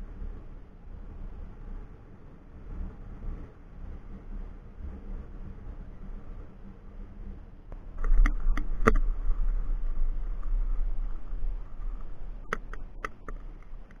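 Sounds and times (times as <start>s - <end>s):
wheels rolling over rough ground: 7.7s - 14.0s.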